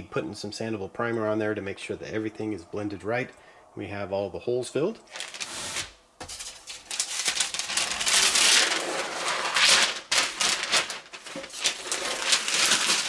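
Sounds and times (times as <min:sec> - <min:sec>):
paper and tape rustling: 0:05.1 - 0:13.0.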